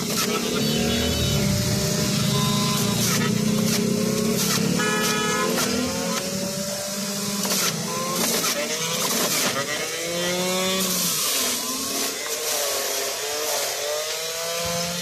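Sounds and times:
juicer motor whining: 0.0 - 15.0
carrots being ground: 10.8 - 14.2.

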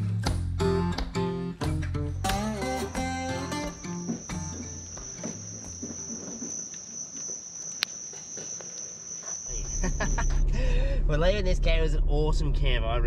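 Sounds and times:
insect trilling: 2.6 - 11.5.

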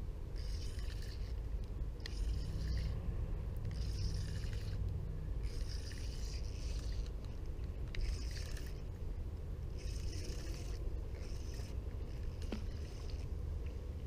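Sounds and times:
fishing reel whirring: 0.3 - 1.4, 2.0 - 2.9, 3.7 - 4.8, 5.4 - 7.1, 7.9 - 8.8, 9.8 - 13.2.

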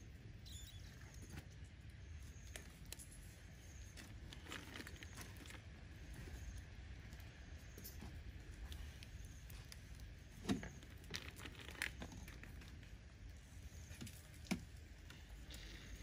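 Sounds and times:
pops and crackles on grill: 6.4 - 13.3.

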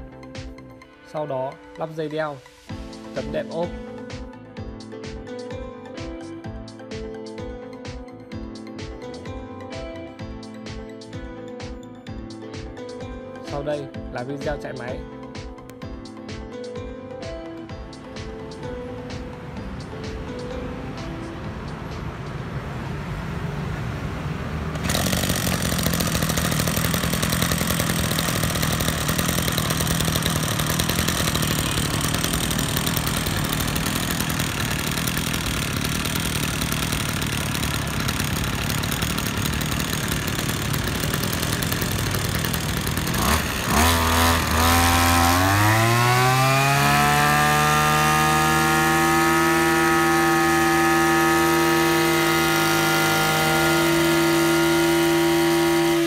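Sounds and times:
brush cutter engine revving: 24.7 - 56.0.

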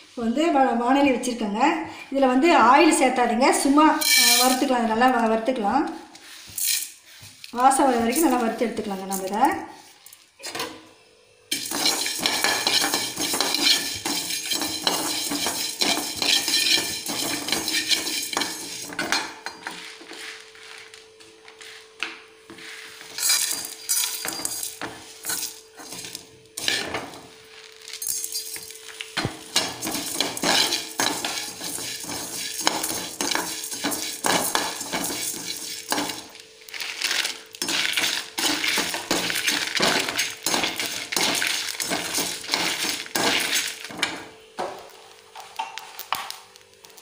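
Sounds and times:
metal scraping and clinking: 4.0 - 4.6, 6.6 - 7.0, 11.5 - 19.8, 23.1 - 27.2, 27.8 - 36.3, 37.0 - 44.2
dry seeds rattling: 29.8 - 43.9.

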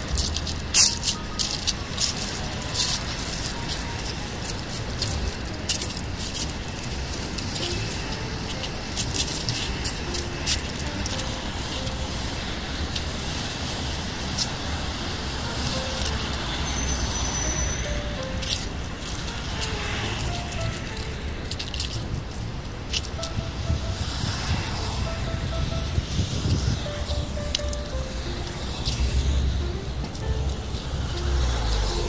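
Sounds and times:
crisp clicks and crunches: 0.0 - 12.3, 15.4 - 25.1
distant road traffic hum: 0.0 - 32.0.

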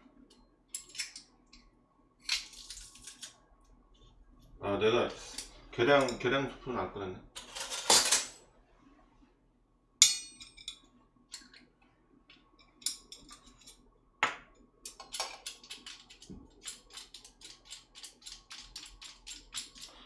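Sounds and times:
dishware clinking: 10.0 - 10.8.

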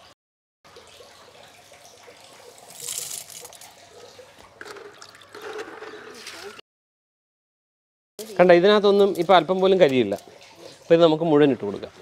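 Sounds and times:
charcoal pieces clattering into barrel: 2.7 - 3.6.

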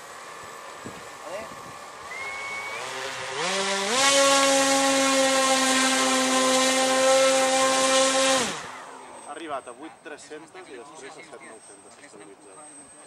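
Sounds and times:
model airplane engine buzzing: 0.0 - 9.3.

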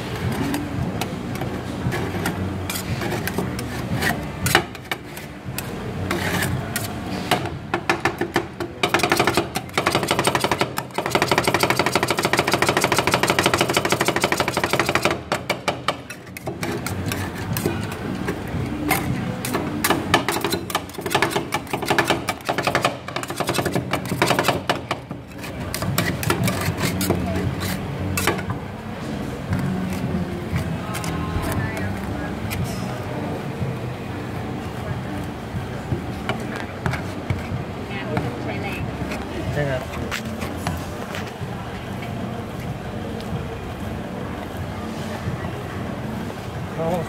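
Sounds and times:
metal spatulas clacking on steel: 18.9 - 27.2.

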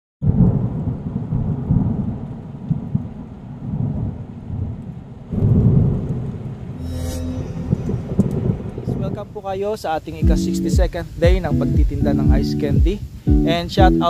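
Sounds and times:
rain: 0.2 - 6.8, 7.6 - 14.0
rolling thunder: 0.2 - 6.8, 7.5 - 9.5.

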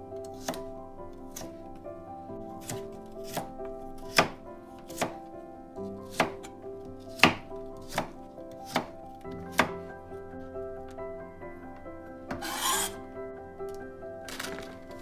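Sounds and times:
soft background music: 0.0 - 15.0
knife chopping on cutting board: 2.6 - 3.5, 4.1 - 4.4, 5.0 - 5.2, 6.1 - 6.4, 7.1 - 8.9, 9.5 - 9.7.

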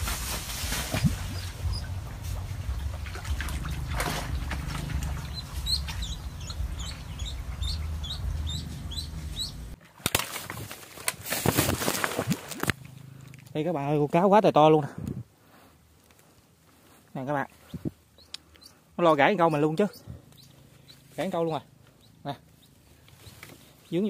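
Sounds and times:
fish thrashing and splashing: 0.0 - 7.0, 9.8 - 13.0
low rumble: 0.0 - 9.8.

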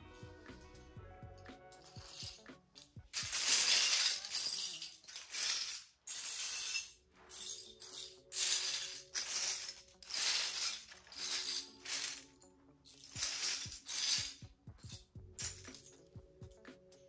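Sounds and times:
plastic bricks clattering: 1.8 - 12.3, 13.0 - 14.4.

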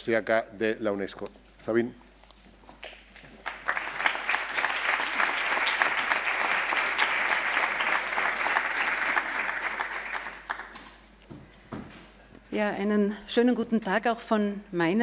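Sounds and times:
audience applauding: 3.3 - 11.1.

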